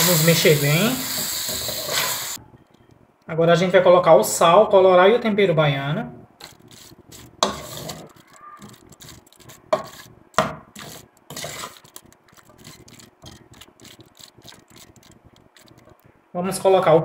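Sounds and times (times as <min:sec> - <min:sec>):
wooden spoon scraping a metal pot: 0:06.4 - 0:16.0.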